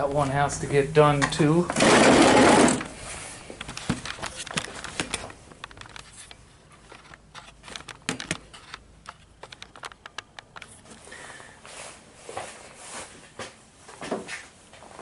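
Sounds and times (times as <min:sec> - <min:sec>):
camera handling clicks and knocks: 0:06.9 - 0:10.8.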